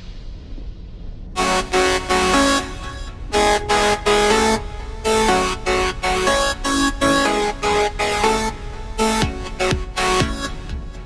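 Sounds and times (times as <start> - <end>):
electronic music with synth: 1.4 - 11.0.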